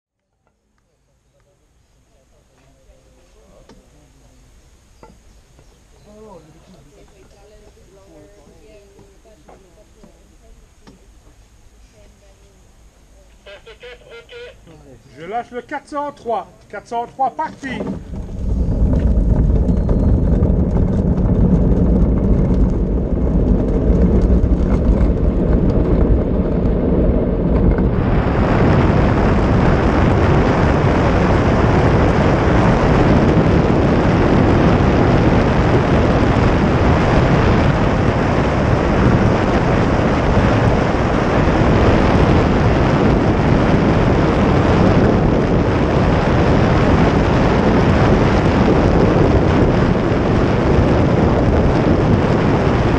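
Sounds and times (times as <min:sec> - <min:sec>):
wind rushing over microphone: 0:12.2 - 0:52.9
wheels rumbling on asphalt: 0:17.2 - 0:52.9.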